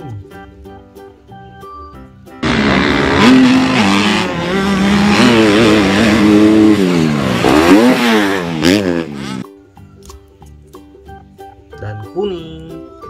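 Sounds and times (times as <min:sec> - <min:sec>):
background music: 0:00.0 - 0:13.0
motorbike engine revving: 0:02.4 - 0:09.5.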